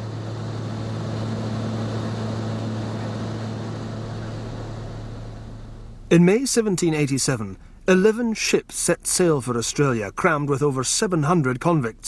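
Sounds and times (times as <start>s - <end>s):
rushing air noise: 0.0s - 7.9s
propeller aircraft engine droning: 0.0s - 12.0s.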